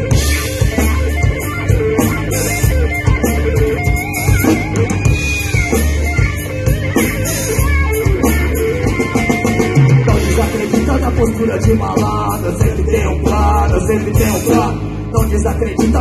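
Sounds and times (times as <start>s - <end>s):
bass guitar: 0.0s - 16.0s
drum kit beat: 0.0s - 16.0s
electric guitar: 0.0s - 16.0s.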